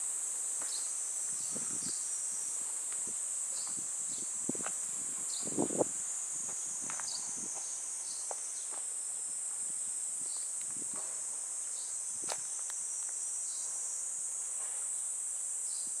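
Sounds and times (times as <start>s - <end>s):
insects shrilling: 0.0s - 16.0s
soft footsteps: 6.4s - 11.3s, 12.2s - 13.8s.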